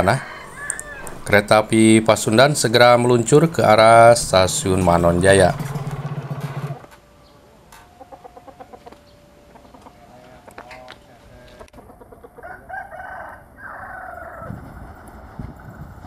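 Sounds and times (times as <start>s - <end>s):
rooster crowing: 0.0s - 1.6s, 12.3s - 14.7s
chickens clucking: 0.0s - 6.0s, 7.2s - 14.7s.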